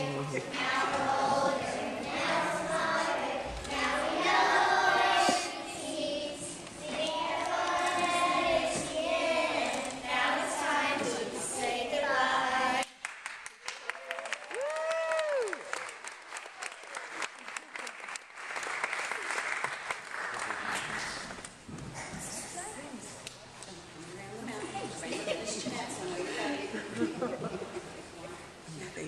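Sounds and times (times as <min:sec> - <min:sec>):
group singing children's song: 0:00.0 - 0:13.0
scattered clapping: 0:12.8 - 0:21.5.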